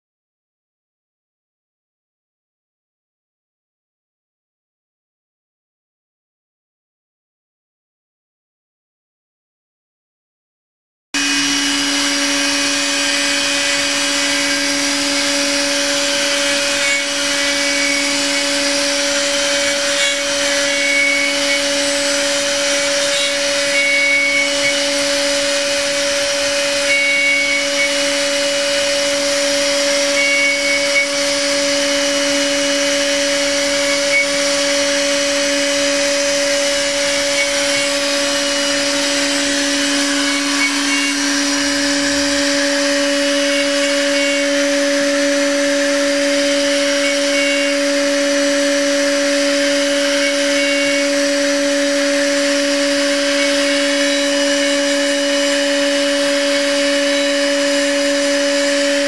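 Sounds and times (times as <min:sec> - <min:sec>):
hiss of metal cutting: 0:11.2 - 0:59.0
milling machine spindle whine: 0:11.2 - 0:59.0.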